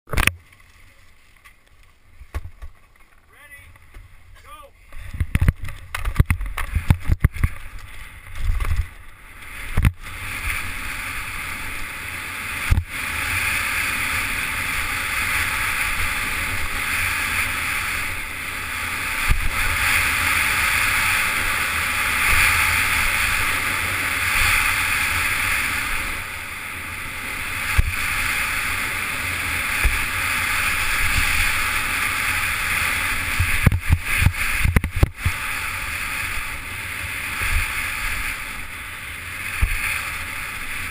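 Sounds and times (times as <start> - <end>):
skis thumping on bumps: 0.1 - 18.2, 27.4 - 38.6
wind buffeting microphone: 4.8 - 40.9
skis scraping over hard snow: 4.9 - 40.9.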